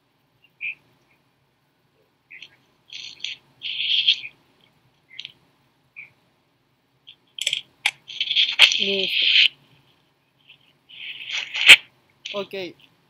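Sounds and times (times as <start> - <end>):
small bird chirping: 0.4 - 1.3, 2.2 - 6.2, 7.0 - 12.8.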